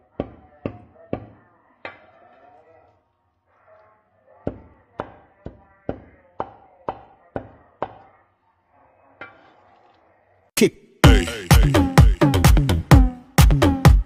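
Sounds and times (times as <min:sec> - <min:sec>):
loud music: 0:10.6 - 0:14.0.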